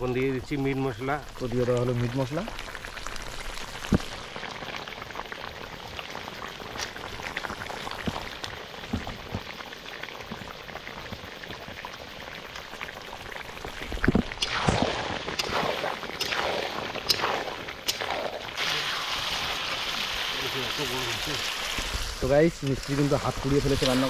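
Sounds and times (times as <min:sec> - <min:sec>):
curry bubbling and crackling: 0:00.1 - 0:24.0.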